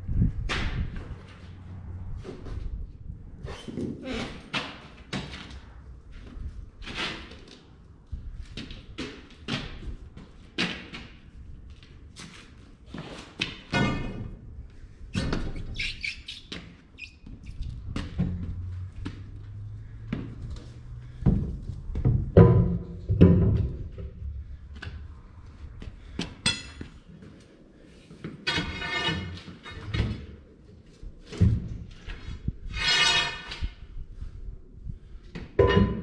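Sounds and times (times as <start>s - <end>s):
short squeaks: 15.1s - 17.8s
tire knocking and thudding on concrete: 16.5s - 25.1s, 35.3s - 36.0s.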